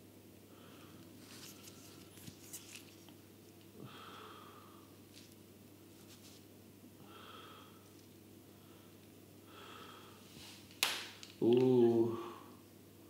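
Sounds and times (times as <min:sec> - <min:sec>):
man breathing softly: 0:03.8 - 0:05.0, 0:07.0 - 0:10.6.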